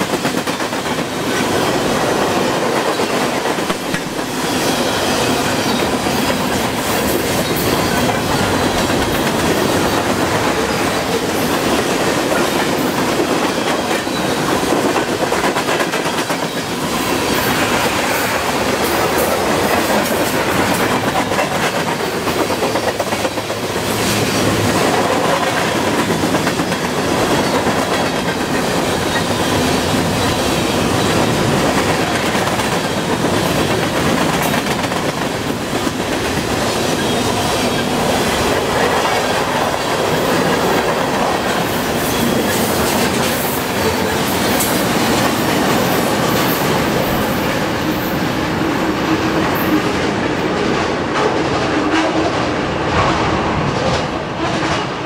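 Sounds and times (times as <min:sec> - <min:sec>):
freight train rumble and rattle: 0:00.0 - 0:55.0.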